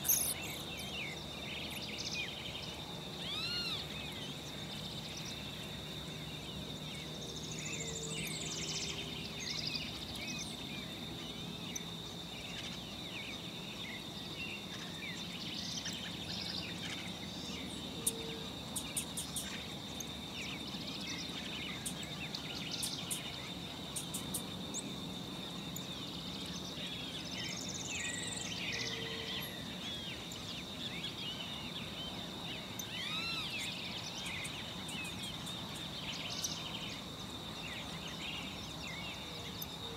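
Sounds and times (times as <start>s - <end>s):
high-pitched insect buzz: 0.0s - 0.9s
rising-and-falling bird calls: 0.0s - 4.4s, 32.7s - 35.2s
small birds chirping: 0.0s - 39.9s.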